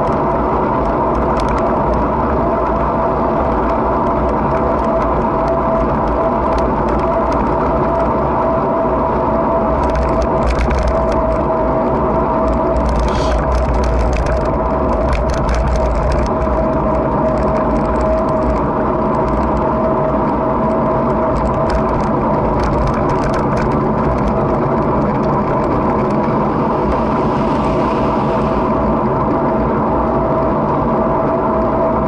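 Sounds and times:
constant whine: 0:00.0 - 0:32.0
road noise rumble: 0:00.0 - 0:32.0
light crackling ticks: 0:00.8 - 0:02.8.

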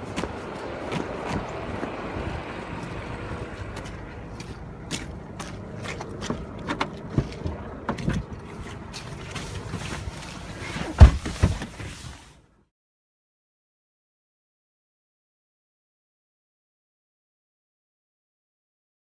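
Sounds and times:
footsteps on muddy ground: 0:00.0 - 0:10.6
car door shutting: 0:10.6 - 0:12.1.

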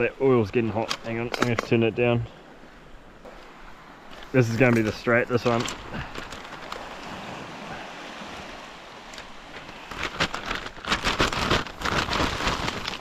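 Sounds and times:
plastic bag crinkling: 0:09.6 - 0:13.0.

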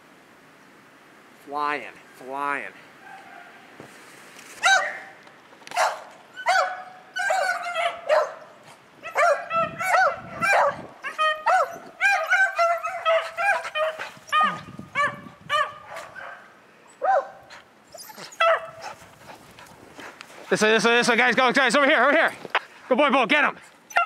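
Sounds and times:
hounds baying: 0:04.6 - 0:20.1, 0:23.6 - 0:24.0.

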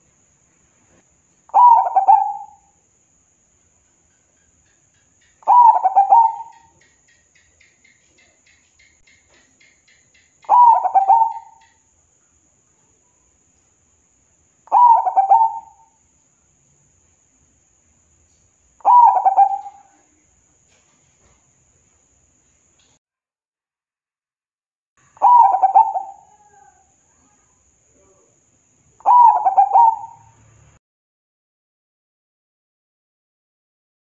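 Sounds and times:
dove cooing: 0:01.5 - 0:02.7, 0:05.4 - 0:06.8, 0:10.4 - 0:11.8, 0:14.7 - 0:15.9, 0:18.8 - 0:20.2, 0:25.2 - 0:26.9, 0:29.0 - 0:30.4.

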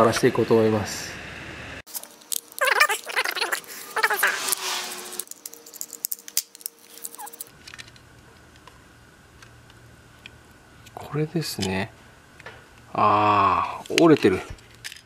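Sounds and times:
screwdriver scraping a screw: 0:03.9 - 0:07.5.

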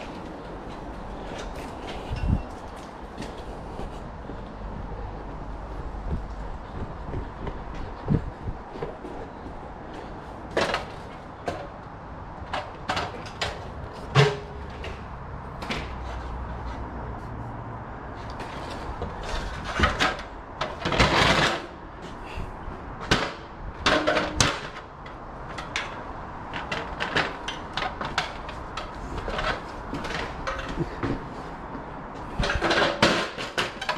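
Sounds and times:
cable knocking and rustling on beams: 0:00.0 - 0:17.3, 0:18.1 - 0:33.9
scraping rustle: 0:18.1 - 0:21.8.

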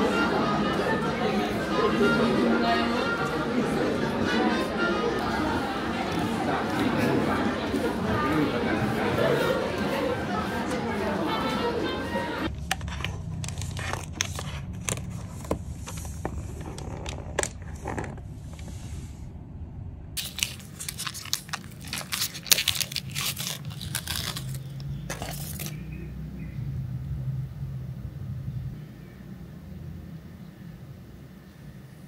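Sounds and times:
steady low rumble: 0:12.4 - 0:25.0, 0:26.0 - 0:32.0
crunching and crinkling clicks: 0:12.5 - 0:18.2, 0:20.2 - 0:26.0.

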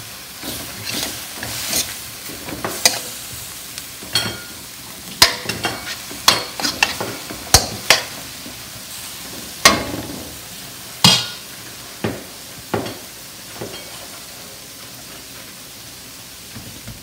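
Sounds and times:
meat and onions sizzling: 0:00.0 - 0:17.0
metal spatula scraping a wok: 0:00.4 - 0:03.2, 0:05.2 - 0:08.2.

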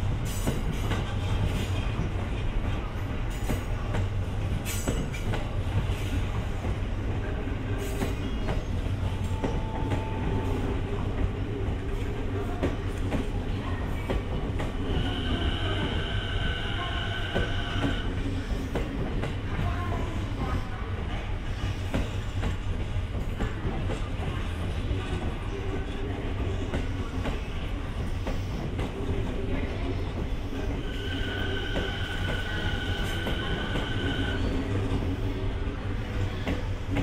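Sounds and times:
train rumbling past: 0:00.0 - 0:37.0
train wheels squealing: 0:30.5 - 0:35.1.

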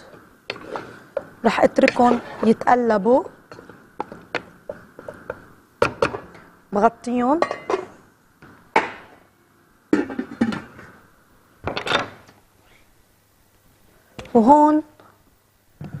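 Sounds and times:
wooden spoon knocking pot: 0:00.5 - 0:02.7, 0:03.5 - 0:06.4.

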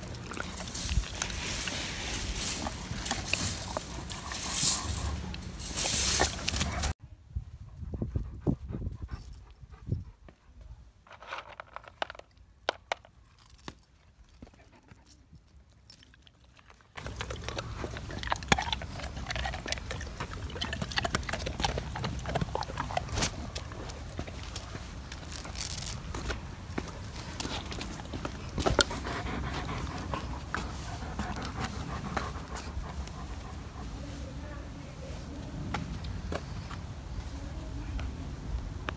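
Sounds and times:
dog panting: 0:00.0 - 0:07.0, 0:17.0 - 0:24.7, 0:26.8 - 0:34.6
short rustle: 0:00.6 - 0:07.0.

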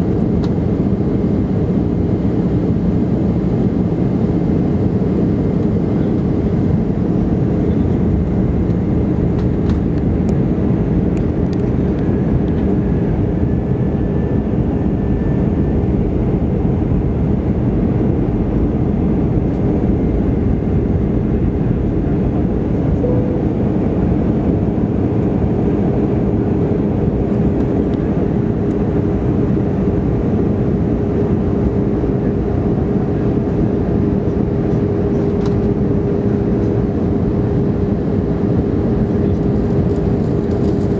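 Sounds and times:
jet engines roaring: 0:00.0 - 0:40.9
low steady hum: 0:05.6 - 0:30.2.

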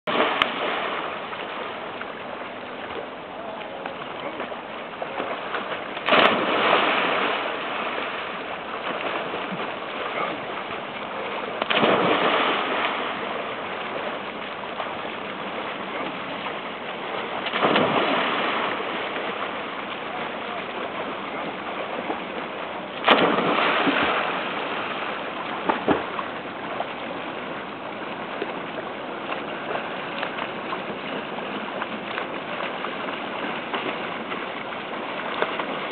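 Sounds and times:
water wash: 0:00.0 - 0:35.9
splashes into lake water: 0:00.1 - 0:35.9.

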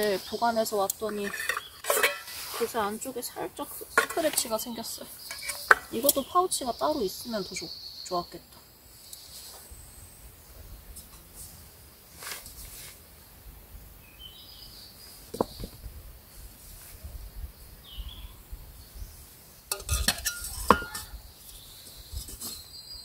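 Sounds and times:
metal pots clinking and clattering: 0:01.0 - 0:02.4, 0:05.3 - 0:05.9, 0:19.7 - 0:21.2
metal clanks: 0:19.7 - 0:21.2.

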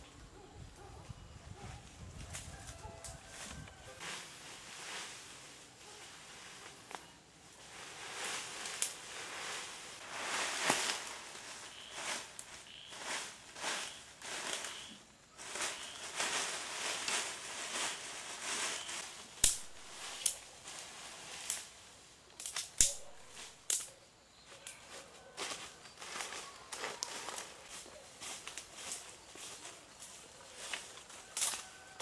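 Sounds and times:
rustling and scraping: 0:01.6 - 0:32.0
sharp snaps: 0:19.4 - 0:20.5, 0:22.3 - 0:24.0.

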